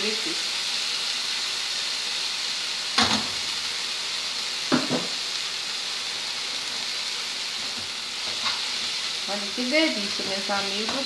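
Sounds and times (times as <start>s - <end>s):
greens sizzling in a frying pan: 0.0s - 11.0s.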